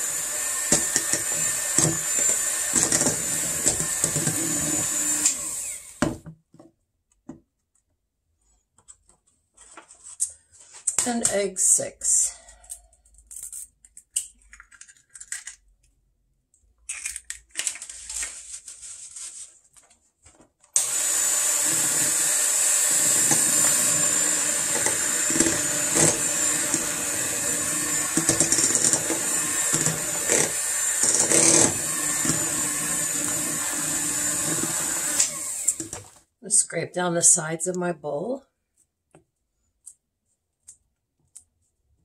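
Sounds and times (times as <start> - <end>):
electric hand mixer whining: 0.0 - 6.2, 20.8 - 36.2.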